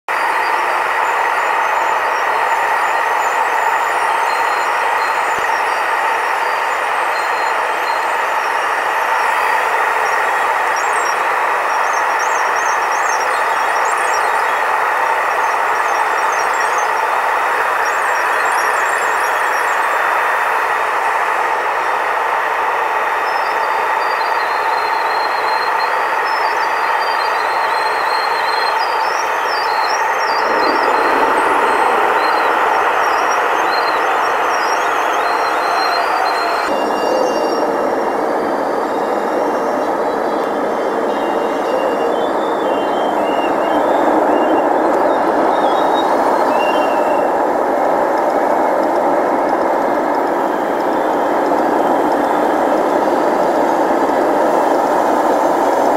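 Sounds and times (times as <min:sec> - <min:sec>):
jet engines humming: 0:00.0 - 0:55.9
faint high whine: 0:00.1 - 0:55.9
air rushing past fuselage: 0:30.2 - 0:55.9.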